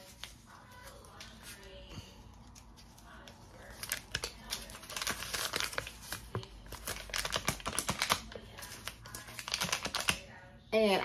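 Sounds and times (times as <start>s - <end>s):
paper bill crinkling: 2.4s - 10.3s.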